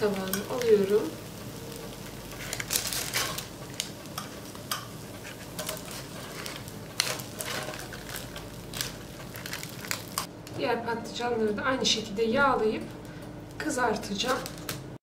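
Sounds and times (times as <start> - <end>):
faint grill sizzle: 0.0 - 10.3.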